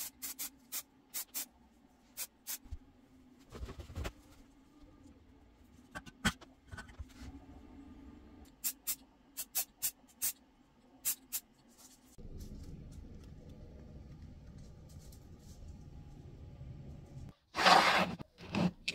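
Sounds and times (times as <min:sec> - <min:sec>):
low steady hum: 0:00.9 - 0:09.4, 0:10.4 - 0:17.3.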